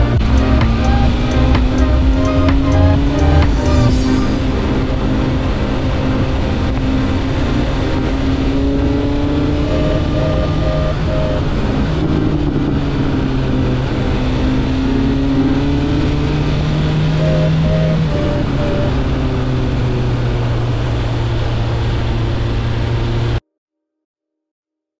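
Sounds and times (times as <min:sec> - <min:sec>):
motorcycle engine running: 0:00.0 - 0:20.5
wind rushing: 0:00.0 - 0:22.7.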